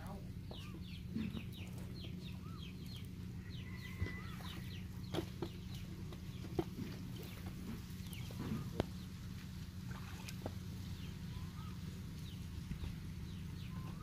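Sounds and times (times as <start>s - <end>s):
birds chirping: 0.0s - 14.0s
hands splashing in muddy water: 9.8s - 10.6s.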